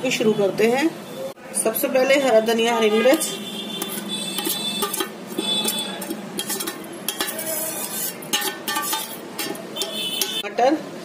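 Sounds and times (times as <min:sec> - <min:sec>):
spoon scraping a steel plate: 0:03.1 - 0:10.4.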